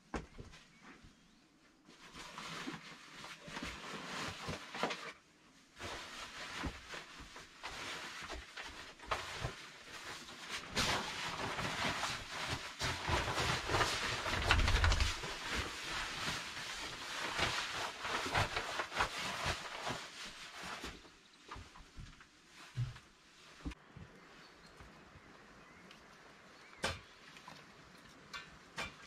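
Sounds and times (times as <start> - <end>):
rustling and clicking of handling: 0.0 - 25.0.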